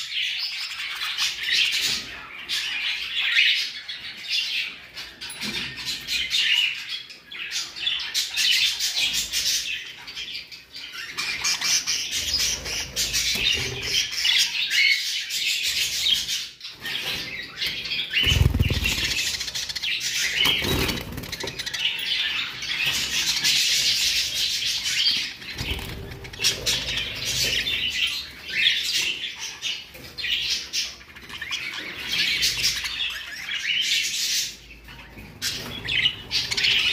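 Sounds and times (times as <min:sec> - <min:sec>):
budgerigars chattering and chirping: 0:00.1 - 0:36.9.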